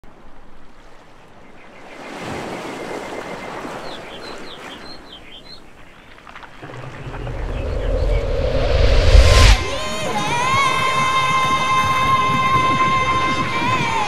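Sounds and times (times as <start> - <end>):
birdlike chirps: 1.4 - 8.4
rushing noise: 6.6 - 14.0.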